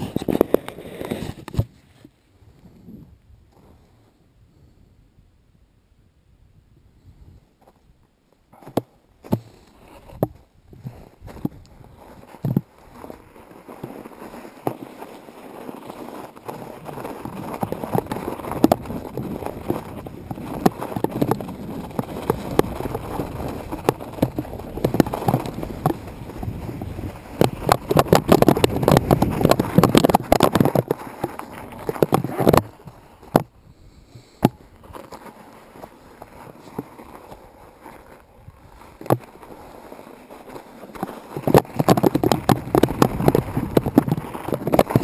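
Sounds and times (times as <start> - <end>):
bike rattling: 8.6 - 33.5, 34.2 - 45.0
tyres crunching on snow: 8.6 - 33.5, 34.1 - 45.0.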